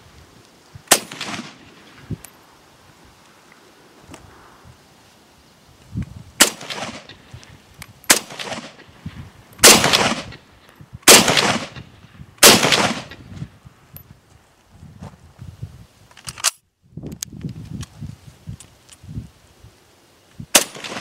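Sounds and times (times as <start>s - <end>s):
rifle shots with echo: 0.9s - 1.9s, 6.4s - 7.2s, 8.1s - 8.8s, 9.6s - 10.4s, 11.1s - 13.2s, 20.5s - 21.0s.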